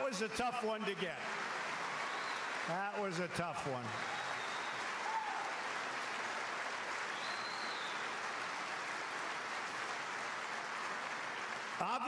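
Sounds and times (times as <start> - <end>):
audience applause: 0.0 - 12.0.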